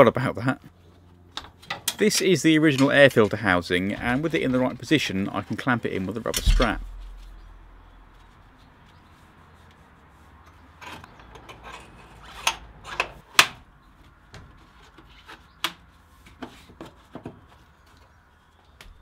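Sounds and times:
sharp clicks and knocks: 6.2s - 8.3s.

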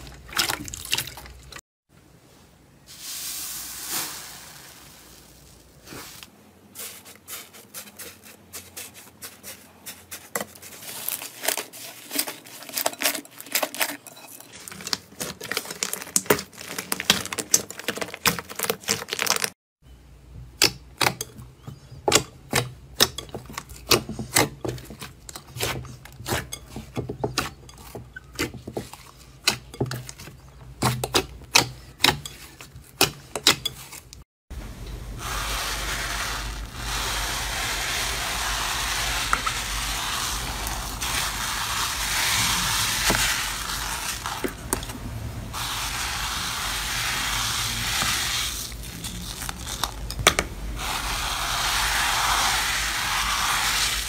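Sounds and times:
slime fizzing hiss: 2.9s - 6.3s, 35.2s - 44.5s, 45.5s - 49.8s, 50.8s - 54.0s
slime crackling and popping: 48.4s - 50.3s.

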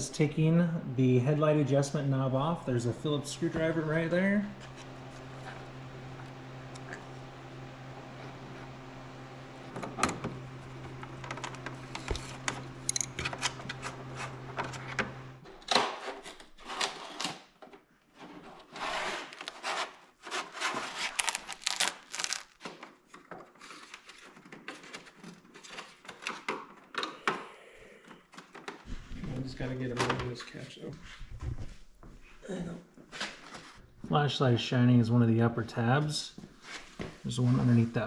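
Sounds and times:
low hum: 0.0s - 15.4s.

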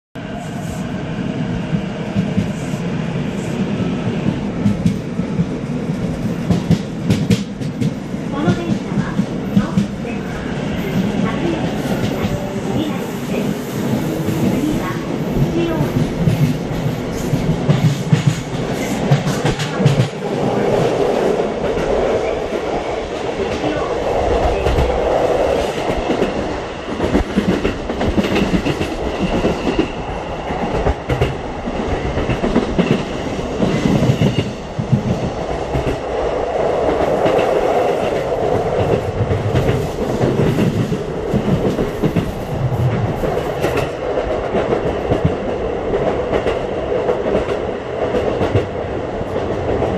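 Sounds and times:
train wheels rumbling on rail: 0.2s - 49.9s
low knocks of train: 4.3s - 10.1s, 14.0s - 20.2s.

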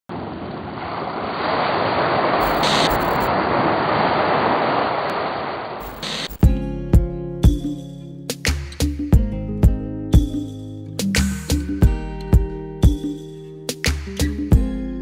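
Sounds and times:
sharp hit: 2.4s - 3.3s.

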